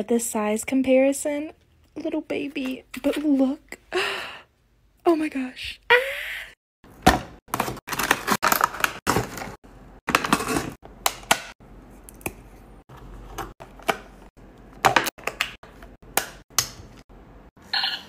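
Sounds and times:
packaging rustling: 7.5s - 10.8s.

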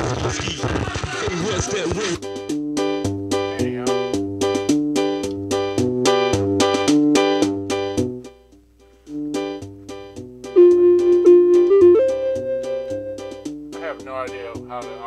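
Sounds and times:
electronic keyboard bass and chords: 2.2s - 8.4s, 9.1s - 13.9s
held keyboard note: 9.1s - 14.0s.

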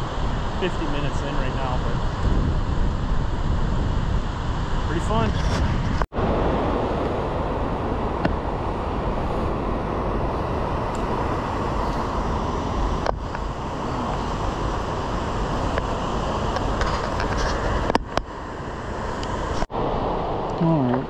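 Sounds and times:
whitewater river roaring: 6.2s - 20.9s.

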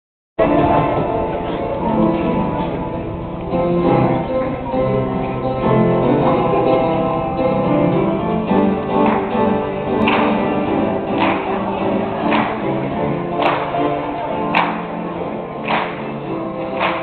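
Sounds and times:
sustained instrumental chords: 0.4s - 17.0s.

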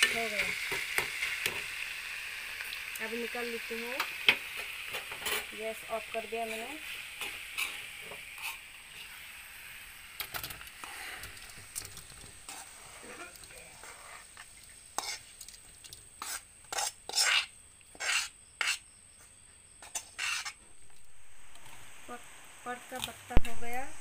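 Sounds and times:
hot pan sizzling: 0.0s - 18.8s, 19.8s - 24.0s
metal spatula scraping a wok: 4.5s - 5.6s, 6.4s - 9.3s, 10.9s - 15.5s, 16.2s - 18.8s, 19.8s - 20.7s.

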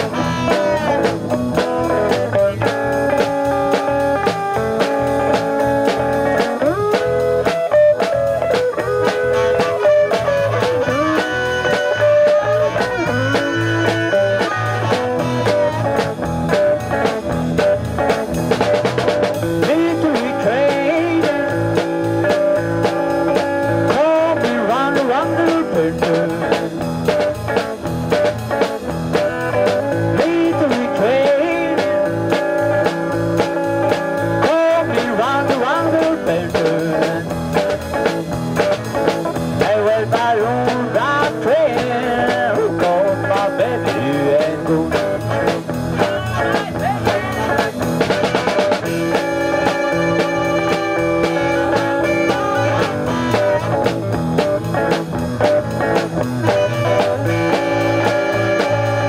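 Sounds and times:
harmonica with bending notes: 0.0s - 1.8s, 6.7s - 16.8s, 48.2s - 54.0s, 56.2s - 59.0s
bass guitar: 0.0s - 59.0s
drums: 0.0s - 59.0s
electric guitar: 0.0s - 59.0s.

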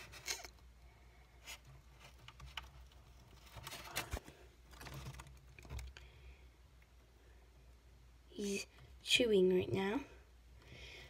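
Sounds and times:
rustling of plastic plants: 0.0s - 6.2s.

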